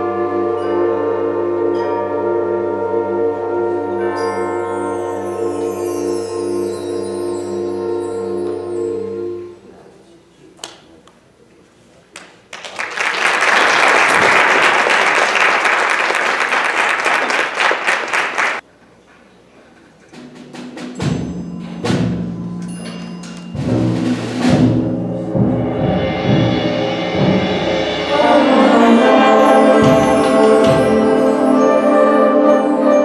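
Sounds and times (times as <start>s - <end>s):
brass and woodwind chords: 0.0s - 9.8s, 25.0s - 33.0s
rattling percussion roll: 20.1s - 31.9s
drum strokes: 20.1s - 32.0s.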